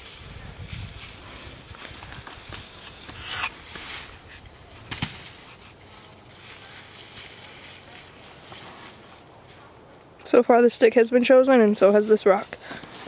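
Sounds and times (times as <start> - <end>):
branch dragged across leaves: 0.0 - 9.8
footsteps on dry leaves: 0.0 - 9.8.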